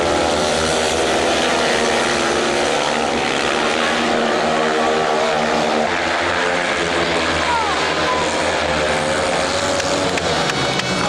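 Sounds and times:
motorcycle engines racing: 0.0 - 11.0.

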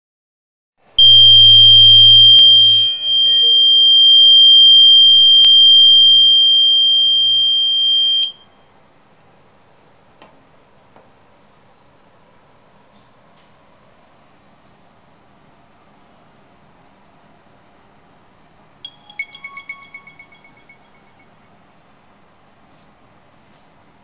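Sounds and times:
piezo buzzer high-pitched tone: 1.0 - 8.5, 18.9 - 21.6.

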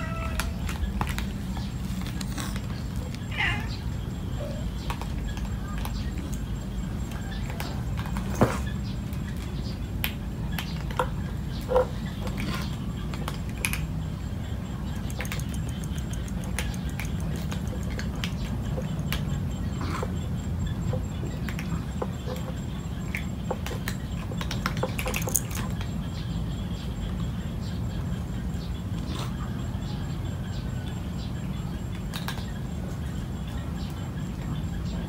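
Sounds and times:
small clicks and ticks: 9.1 - 19.5, 20.6 - 26.3.

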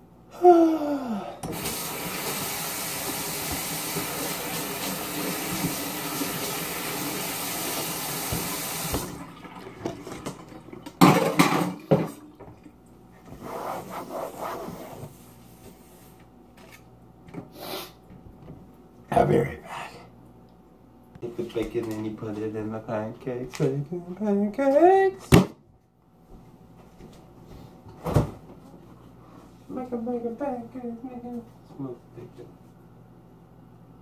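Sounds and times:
man groaning: 0.3 - 1.4
tap running water into sink: 1.4 - 12.6.

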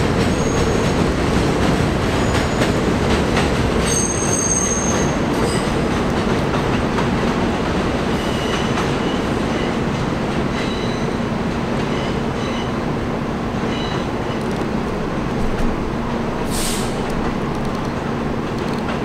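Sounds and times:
train wheels rumbling on rails: 0.0 - 19.0
high wheel squeal: 3.8 - 5.8.

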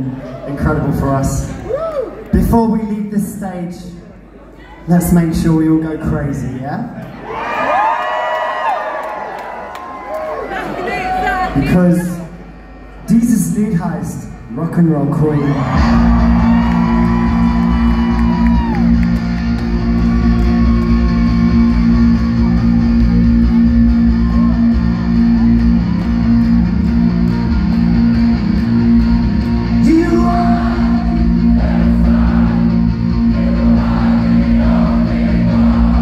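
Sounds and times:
bass guitar: 15.4 - 36.0
steady drumbeat: 15.6 - 36.0.

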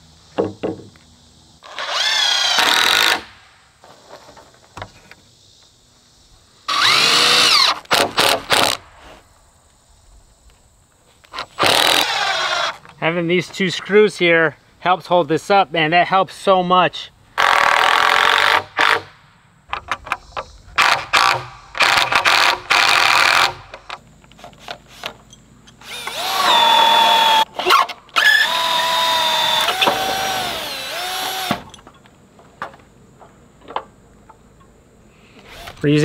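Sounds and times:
cordless drill drilling into wood: 1.7 - 3.2, 6.7 - 8.8, 11.6 - 12.7, 25.8 - 27.4, 28.2 - 31.6.

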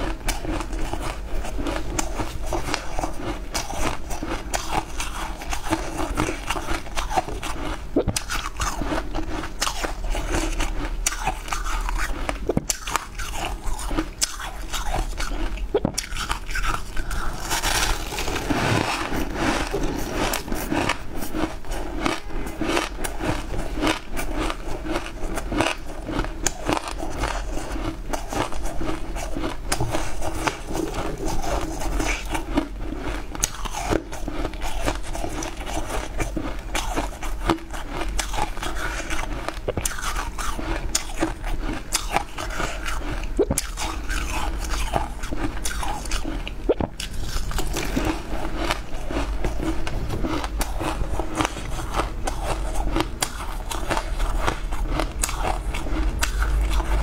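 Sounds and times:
crunching ice: 9.6 - 46.4.

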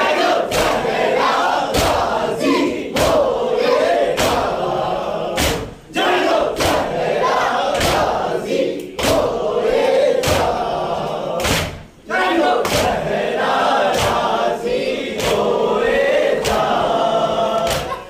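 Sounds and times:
men chanting together: 0.0 - 18.0
hands slapping chests: 5.4 - 5.8, 11.4 - 11.9, 12.6 - 13.1, 13.8 - 14.3, 15.2 - 15.6, 17.6 - 18.0.

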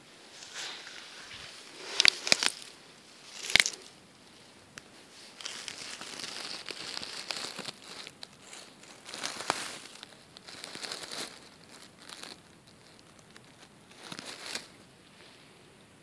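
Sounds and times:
grass brushing against microphone: 0.0 - 12.4.

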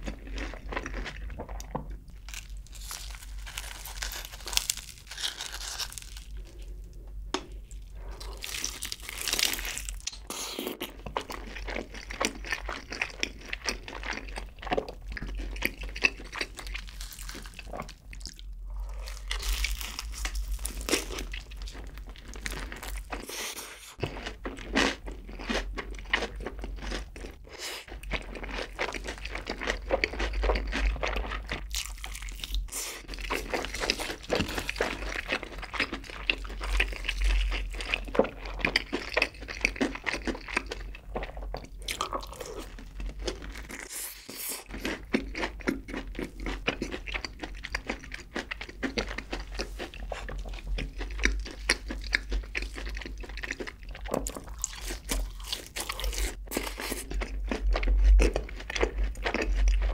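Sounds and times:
crunchy chewing of fried chicken: 0.0 - 59.9.

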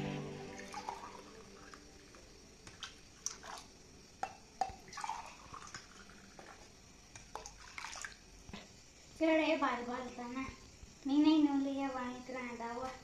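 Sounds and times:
liquid dripping and splashing: 2.6 - 8.5.

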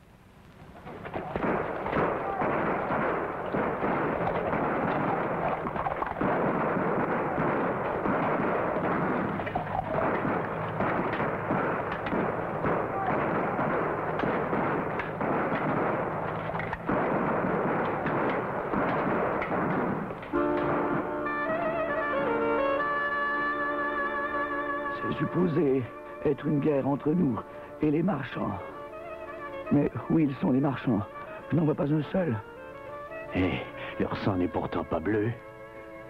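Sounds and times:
musket and cannon fire: 0.8 - 22.2.

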